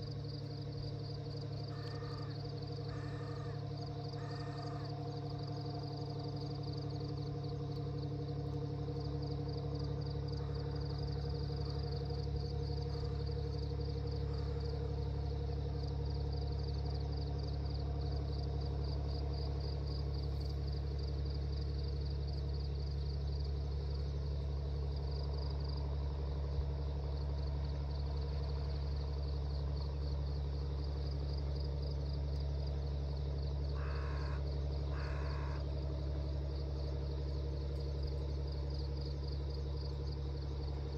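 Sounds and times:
steady low hum: 0.0s - 40.9s
short calls: 33.8s - 35.6s.

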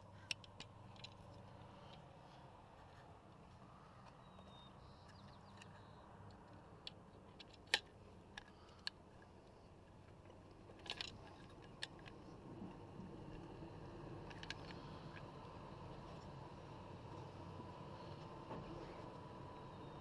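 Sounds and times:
faint steady hum: 0.0s - 20.0s
clicks and knocks of tools: 0.2s - 2.1s, 5.0s - 9.3s, 10.1s - 13.4s, 14.2s - 15.3s.

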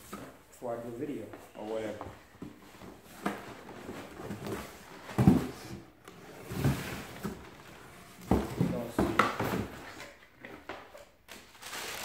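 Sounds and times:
rustling cardboard: 1.8s - 10.2s.

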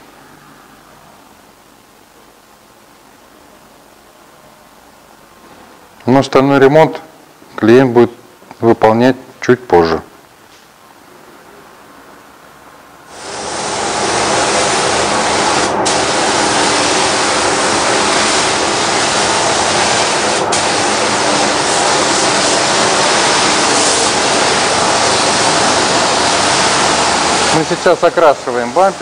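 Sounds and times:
paint spray gun hissing: 13.1s - 27.7s.

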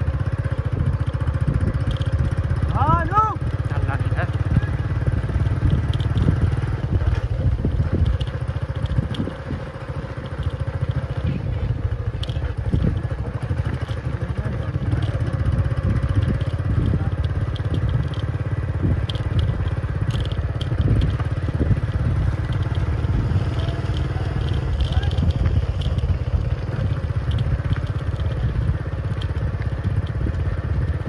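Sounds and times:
tyres crunching on dirt: 0.0s - 31.0s
vehicle engine running: 0.0s - 31.0s
grit clicking: 11.8s - 31.0s.

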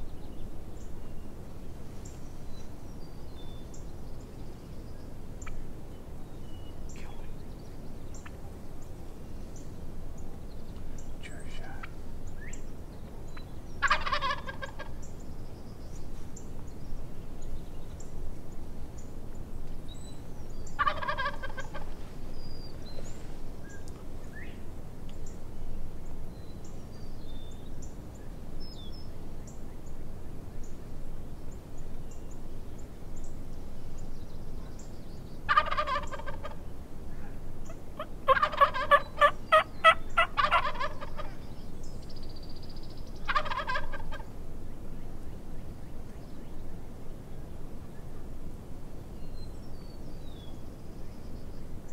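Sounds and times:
small birds chirping: 0.0s - 48.2s
turkeys gobbling: 13.8s - 15.0s, 20.8s - 22.0s, 35.5s - 36.6s, 37.7s - 41.4s, 43.2s - 44.3s.

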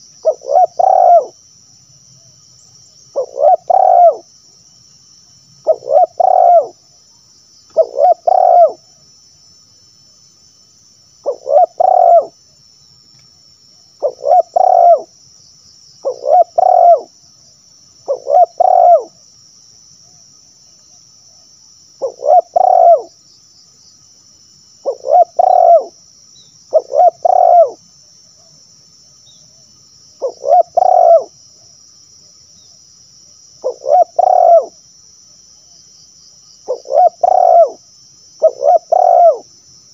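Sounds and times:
dove cooing: 0.0s - 1.4s, 3.1s - 4.3s, 5.6s - 6.8s, 7.8s - 8.8s, 11.2s - 12.4s, 14.0s - 15.1s, 16.0s - 17.1s, 18.1s - 19.2s, 22.0s - 23.1s, 24.8s - 26.0s, 26.7s - 27.8s, 30.2s - 31.3s, 33.6s - 34.8s, 36.7s - 37.8s, 38.4s - 39.5s.

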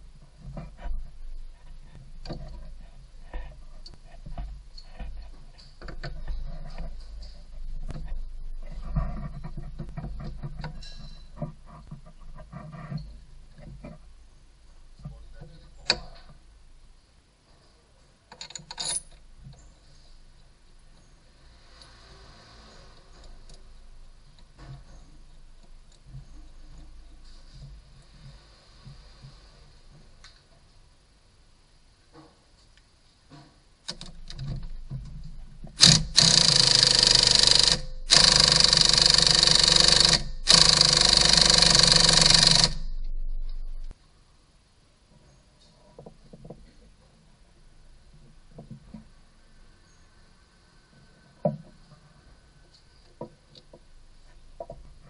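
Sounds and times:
tool clicks and rattles: 18.3s - 19.3s, 33.9s - 43.9s
metal bolt and washer clinking: 18.3s - 19.7s
impact wrench hammering: 35.8s - 43.0s.

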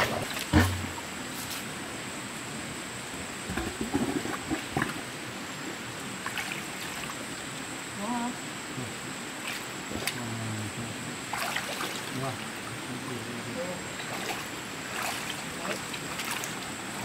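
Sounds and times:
knocks and splashes: 0.0s - 1.2s, 3.4s - 5.1s, 6.2s - 7.2s, 11.3s - 12.4s, 14.0s - 17.0s
water running and trickling: 9.2s - 17.0s.

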